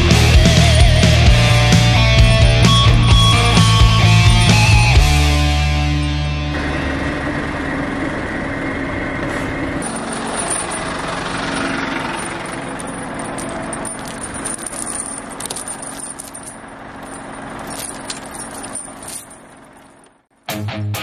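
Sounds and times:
diesel engine idling: 0:00.0 - 0:20.2
snow chains clinking: 0:02.7 - 0:05.1, 0:09.8 - 0:20.1.

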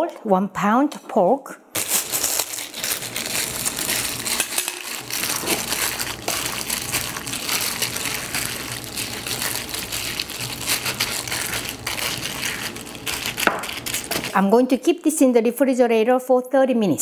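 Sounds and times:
plastic glove crinkling: 0:01.7 - 0:14.5
wet squelching of kneaded meat: 0:02.0 - 0:14.4.

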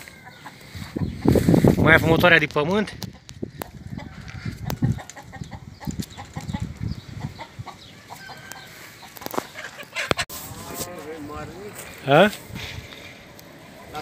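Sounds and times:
hens clucking: 0:00.0 - 0:11.0, 0:11.8 - 0:14.0
low wind rumble: 0:00.6 - 0:08.0.

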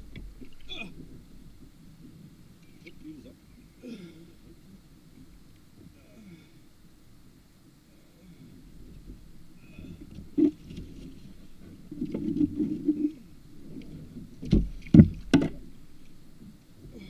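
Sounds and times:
scuffling rumble: 0:08.3 - 0:17.0.

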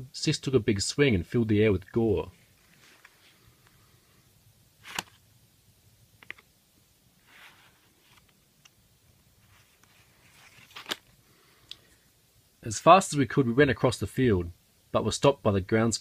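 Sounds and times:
page turning rustle: 0:02.4 - 0:03.5, 0:04.8 - 0:05.2, 0:06.2 - 0:06.5, 0:07.2 - 0:08.8, 0:09.4 - 0:11.2
paper card click: 0:04.9 - 0:05.2.

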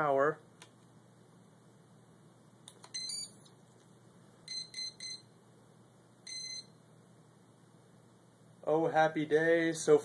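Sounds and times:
motor start-up beeps: 0:04.5 - 0:05.2, 0:06.3 - 0:06.7.

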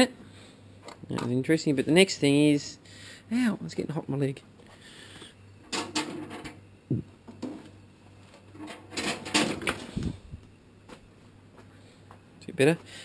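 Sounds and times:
metal heater clanking: 0:05.6 - 0:06.6, 0:08.5 - 0:10.2.

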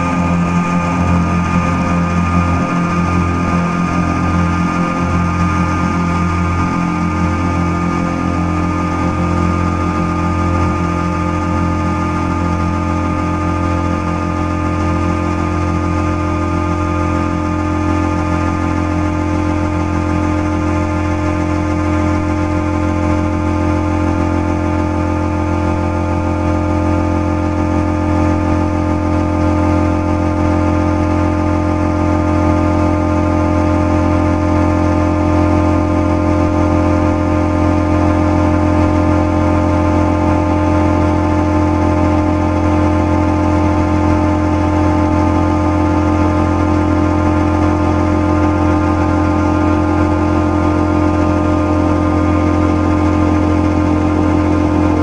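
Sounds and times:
electronic drone music: 0:00.0 - 0:55.0.

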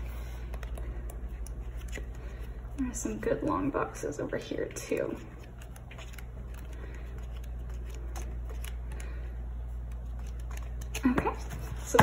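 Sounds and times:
steady low hum: 0:00.0 - 0:12.0
paper pages flipping: 0:00.2 - 0:02.6, 0:04.9 - 0:11.9.

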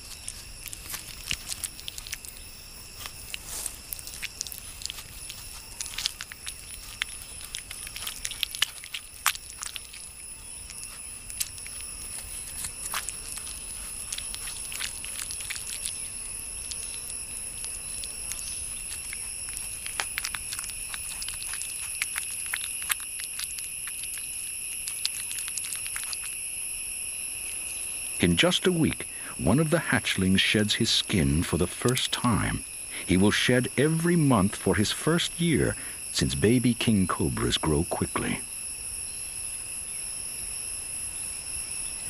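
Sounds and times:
sharp clicks and crackles: 0:00.0 - 0:26.4
insects droning: 0:00.0 - 0:42.0.

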